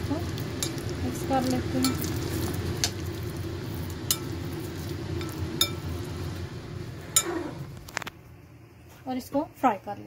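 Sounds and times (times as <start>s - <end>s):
spoon stirring thick marinade: 0.4s - 6.1s.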